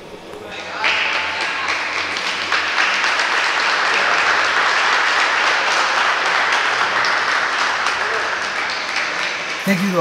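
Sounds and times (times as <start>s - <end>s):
crowd applauding: 0.7s - 10.0s.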